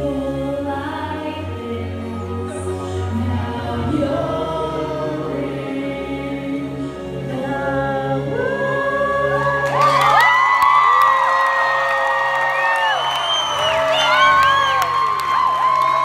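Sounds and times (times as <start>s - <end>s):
man and woman singing duet: 0.0s - 10.6s
backing music: 0.0s - 10.8s, 12.5s - 16.0s.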